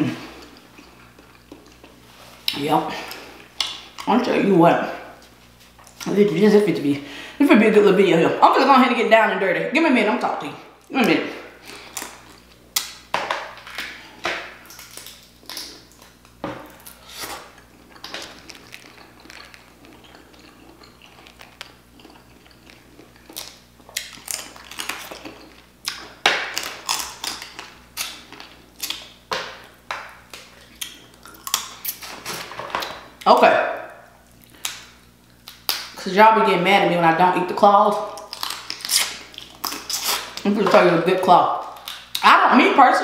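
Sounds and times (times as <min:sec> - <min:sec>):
chewing and mouth sounds: 0:00.1 - 0:04.1, 0:11.6 - 0:36.0, 0:37.9 - 0:40.5
shells cracking and snapping: 0:11.6 - 0:16.9, 0:17.6 - 0:33.0, 0:34.3 - 0:36.0, 0:38.2 - 0:40.5.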